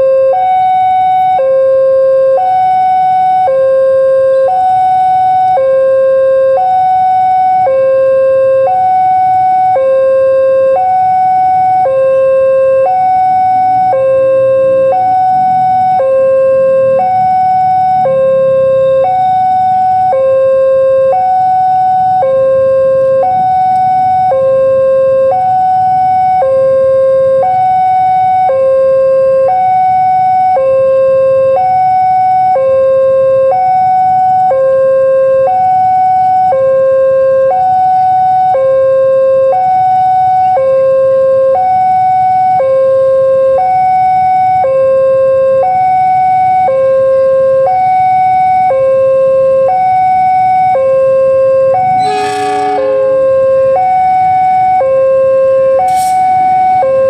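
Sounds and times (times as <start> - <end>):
two-tone level crossing alarm: 0.0 - 57.0
train horn blast: 51.8 - 54.7.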